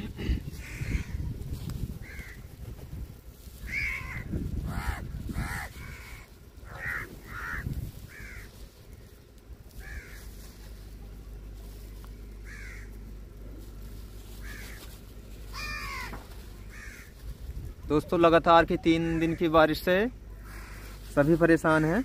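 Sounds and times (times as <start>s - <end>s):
crows cawing: 0.0s - 1.4s, 2.0s - 2.5s, 3.6s - 10.6s, 12.4s - 13.2s, 14.2s - 17.3s, 18.8s - 22.0s.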